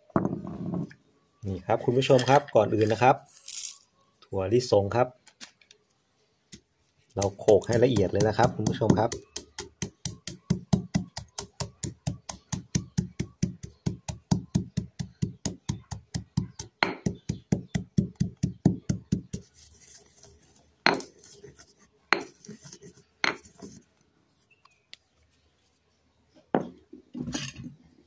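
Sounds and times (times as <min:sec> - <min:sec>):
pestle pounding in stone mortar: 0:07.2 - 0:19.4, 0:20.9 - 0:21.1.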